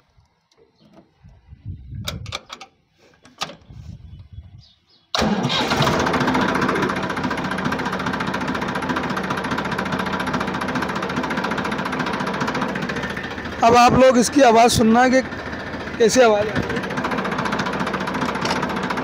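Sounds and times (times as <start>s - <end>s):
tractor diesel engine running: 5.2s - 19.0s.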